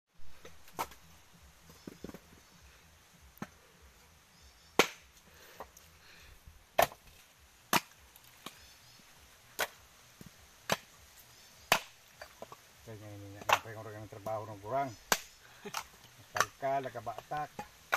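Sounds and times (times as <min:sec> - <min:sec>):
knife chopping coconuts: 0:04.8 - 0:05.0, 0:06.8 - 0:07.1, 0:09.6 - 0:10.9, 0:11.7 - 0:12.6, 0:13.3 - 0:17.9.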